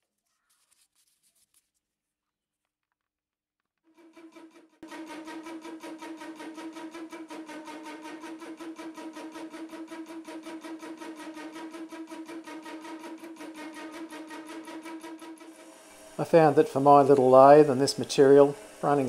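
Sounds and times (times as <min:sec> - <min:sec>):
metal lathe cutting: 0:04.8 - 0:19.0.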